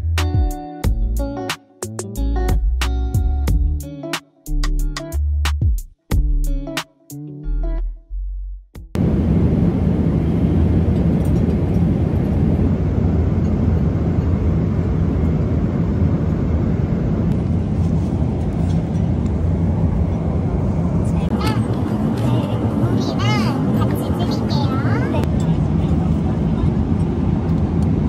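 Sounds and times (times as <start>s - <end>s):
airliner cabin drone: 9.0s - 28.0s.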